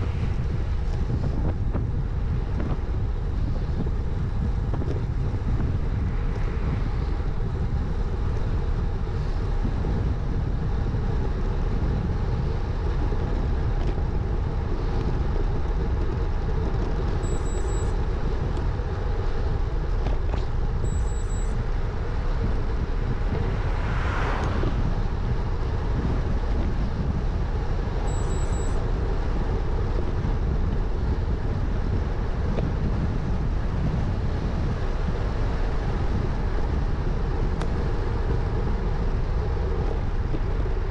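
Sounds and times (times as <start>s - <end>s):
bike tyres on wet tarmac: 0.0s - 20.9s, 21.5s - 40.9s
wind rush on microphone: 0.0s - 40.9s
car passing: 21.7s - 26.5s.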